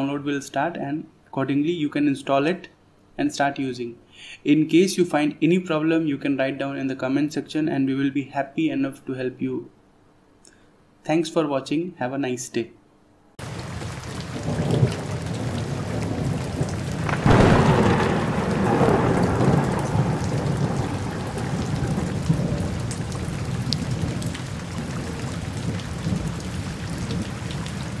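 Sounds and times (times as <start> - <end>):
steady rain: 13.4 - 28.0
thunder rumbling: 13.4 - 28.0.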